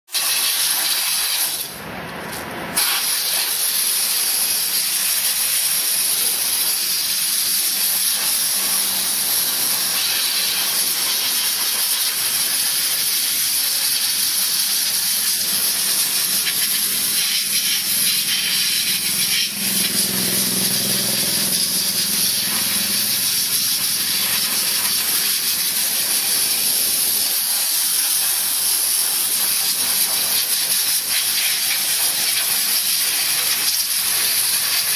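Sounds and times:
steam jet hissing: 0.1 - 1.8, 2.7 - 34.9.

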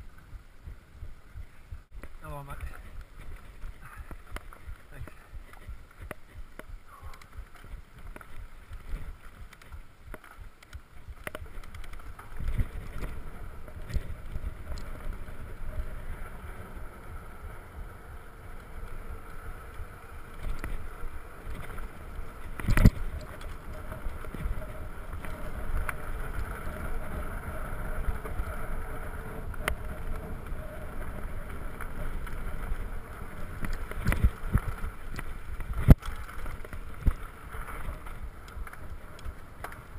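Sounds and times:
bike tyres and frame rattling: 0.0 - 39.9.

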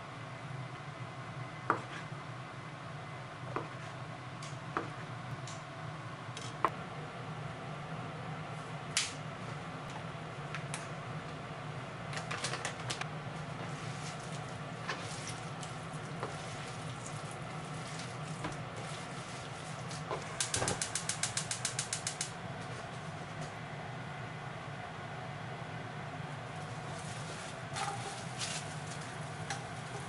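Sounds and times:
steady low hum: 0.0 - 30.0
rapid sharp clicks: 20.4 - 22.3.

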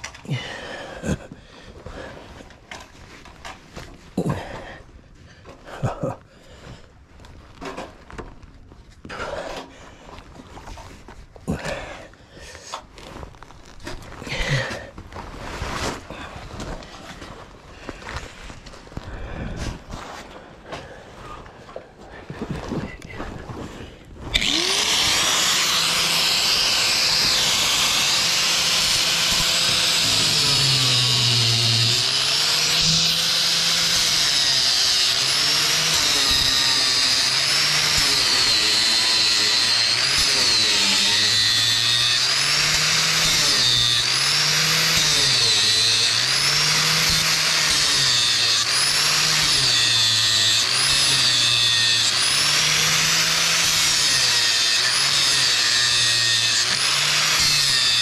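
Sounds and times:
power tool cutting metal: 24.3 - 58.0.

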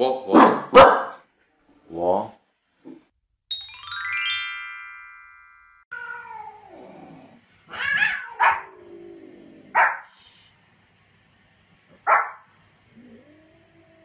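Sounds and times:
dog barking: 0.3 - 1.2, 8.0 - 8.7, 9.7 - 10.1, 12.0 - 12.4
chime: 3.5 - 5.9
cat meowing: 5.9 - 6.8, 7.7 - 8.8.

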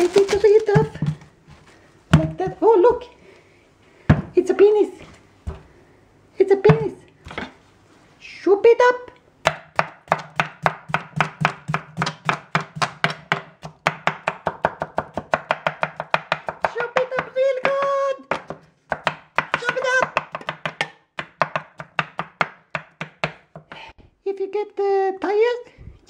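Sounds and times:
knife chopping on wooden board: 9.4 - 23.8.

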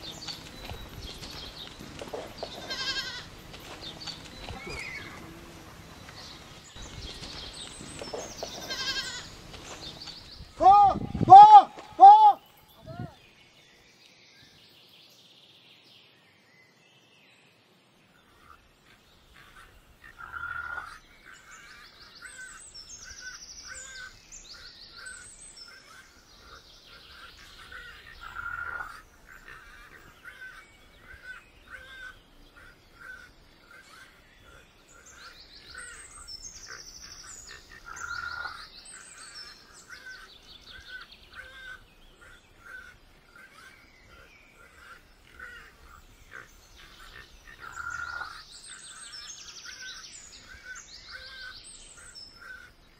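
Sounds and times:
loud bird calls: 0.0 - 13.4, 18.2 - 52.9
songbirds singing: 0.0 - 52.9.

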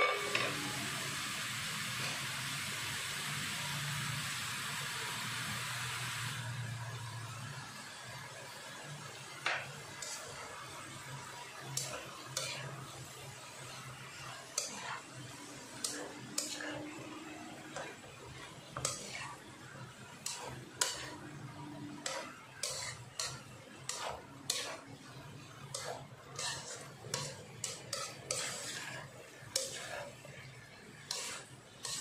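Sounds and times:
spatula scraping frying pan: 0.0 - 0.8, 9.4 - 32.0.

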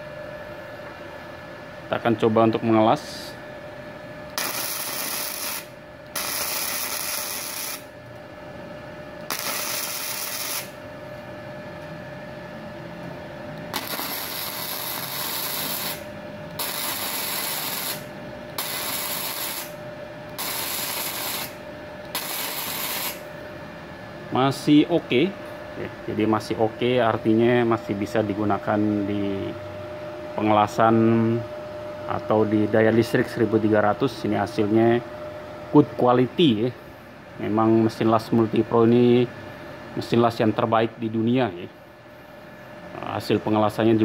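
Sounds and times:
welding arc crackling and hissing: 4.4 - 7.9, 9.3 - 10.8, 13.7 - 19.8, 20.4 - 23.2.

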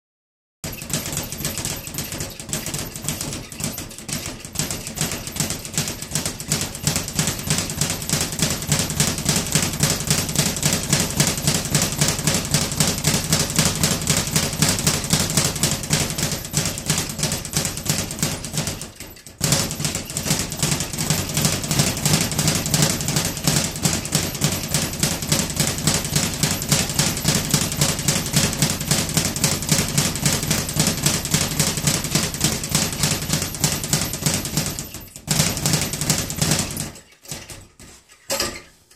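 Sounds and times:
speed bag rattling: 0.6 - 38.5.

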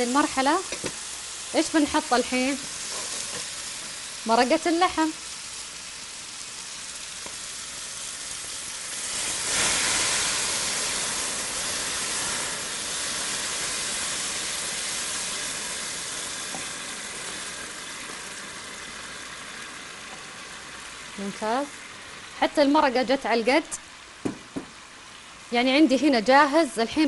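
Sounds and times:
loud sizzling: 0.0 - 23.0
broth pouring into pot: 6.0 - 22.3.

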